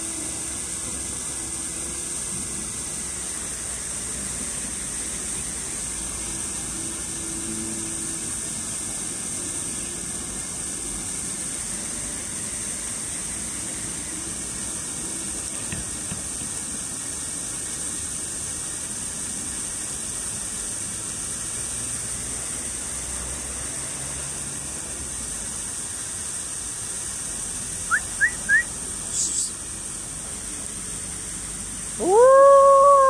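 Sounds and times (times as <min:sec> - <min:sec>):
outdoor background hiss: 0:00.0 - 0:33.0
quick rising chirps: 0:27.9 - 0:28.7.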